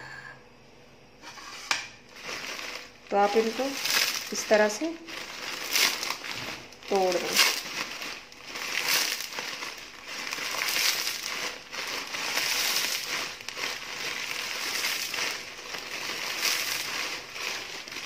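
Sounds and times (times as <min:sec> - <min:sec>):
plastic wrapper crinkling: 0:02.0 - 0:18.0
dry noodles snapping: 0:03.7 - 0:18.0.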